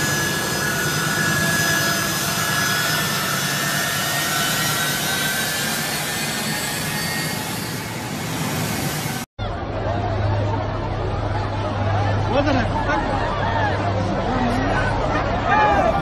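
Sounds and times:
jet engines taxiing: 0.0 - 9.3.

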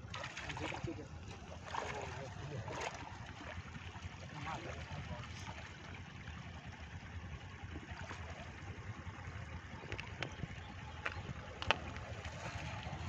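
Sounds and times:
water splashing and trickling: 0.0 - 13.0
wind rumble on microphone: 7.5 - 13.0.

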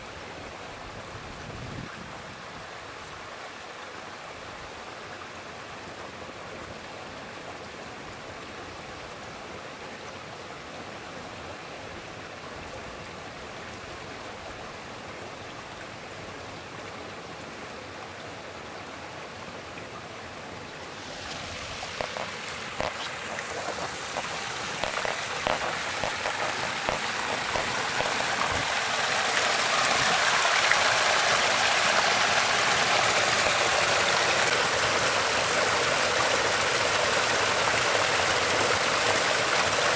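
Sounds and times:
fountain water splashing into basin: 20.8 - 39.9.

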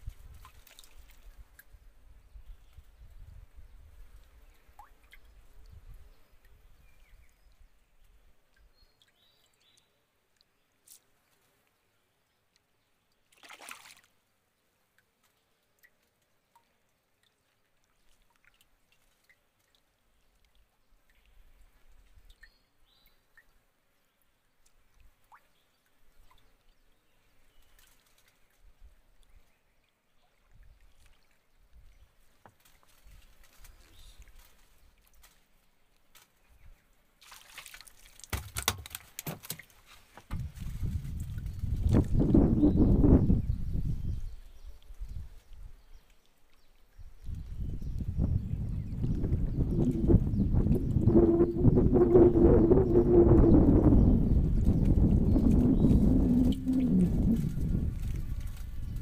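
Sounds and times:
small splash: 0.0 - 1.7, 13.2 - 14.2, 15.2 - 22.5, 30.4 - 36.5, 37.2 - 42.3
faint water drips: 0.0 - 42.2, 44.4 - 51.0
fish flapping on wooden deck: 37.3 - 42.1.

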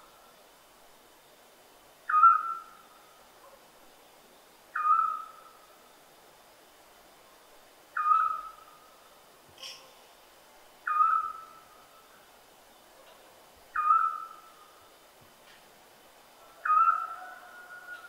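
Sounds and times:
owl hooting: 2.1 - 2.8, 4.8 - 5.5, 8.0 - 8.6, 10.8 - 11.6, 13.8 - 14.5, 16.5 - 18.0.

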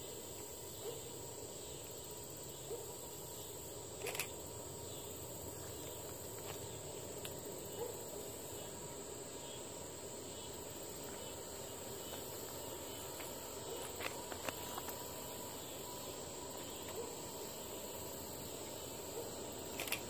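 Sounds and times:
insects buzzing in trees: 0.0 - 20.0.

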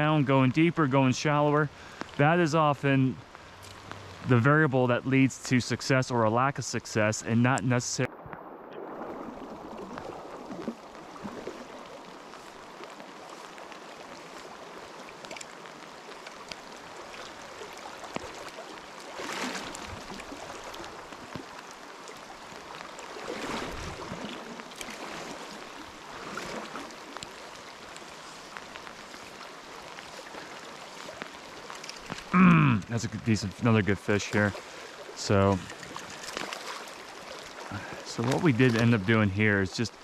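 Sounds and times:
rain falling on water: 0.0 - 40.0
stream flowing: 0.0 - 40.0.

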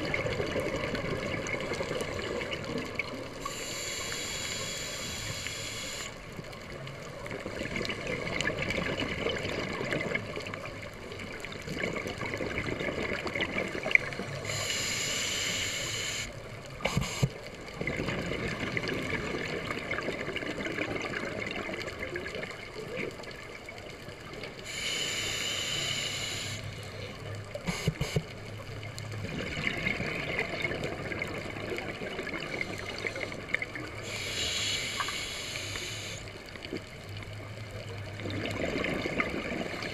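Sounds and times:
bubbling exhaled bubbles: 0.0 - 3.4, 11.5 - 14.3, 17.8 - 23.4, 28.9 - 34.2, 38.0 - 39.9
scuba regulator breathing hiss: 3.4 - 6.2, 14.2 - 17.4, 24.6 - 27.0, 27.7 - 28.2, 32.5 - 36.4.

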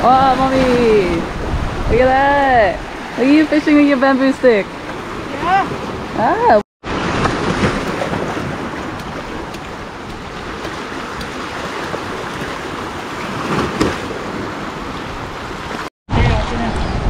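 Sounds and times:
wind on microphone: 0.0 - 6.6
small waves splashing over rocks: 6.9 - 15.9.

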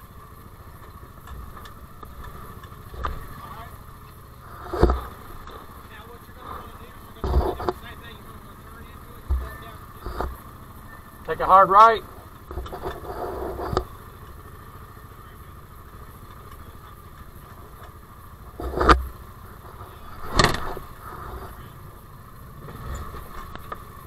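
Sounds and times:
utility vehicle engine running: 0.0 - 24.0
vehicle bumping against rock: 0.8 - 14.4, 16.1 - 21.7, 22.6 - 24.0.

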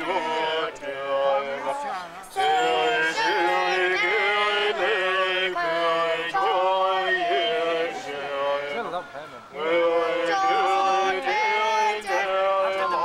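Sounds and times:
person chanting through megaphone: 0.0 - 13.0.

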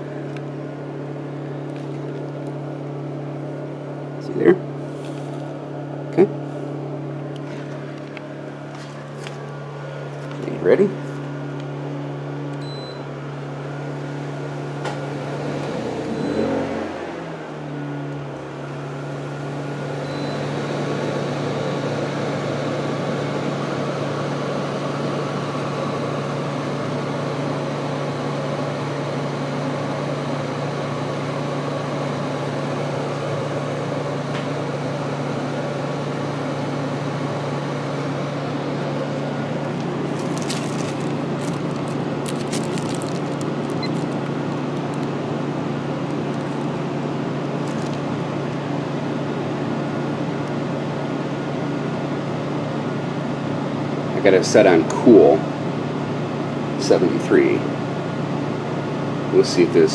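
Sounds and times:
air conditioner fan humming: 0.0 - 59.9.

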